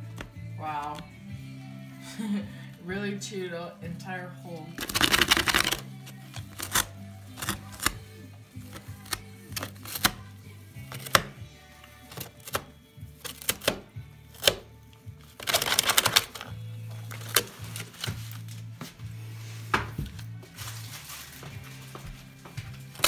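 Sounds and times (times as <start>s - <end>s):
background music: 0.0s - 23.0s
rabbit chewing cardboard: 4.7s - 18.5s, 22.8s - 23.0s.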